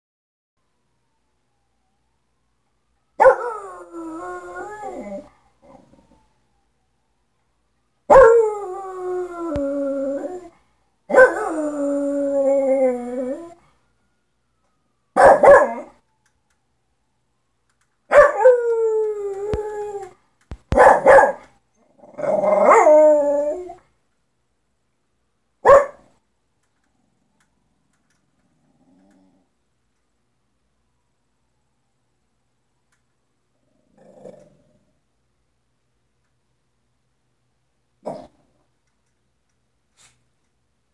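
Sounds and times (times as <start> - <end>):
dog yips and barks: 3.2 - 3.5, 8.1 - 8.4, 11.1 - 11.5, 15.2 - 15.9, 18.1 - 18.6, 20.7 - 21.5, 22.2 - 23.0, 25.6 - 26.1
small dog howling: 11.1 - 13.6, 22.1 - 23.8.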